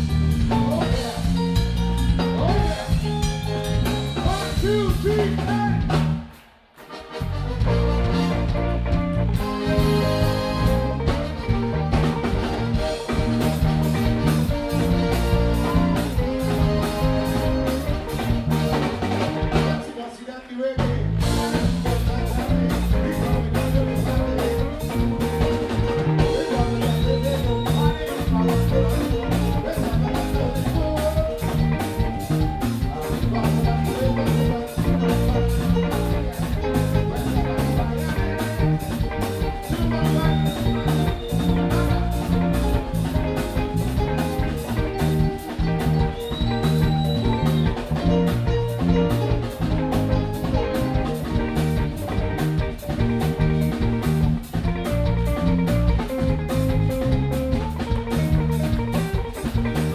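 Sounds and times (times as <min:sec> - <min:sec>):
live band playing soca: 0:00.0 - 0:59.9.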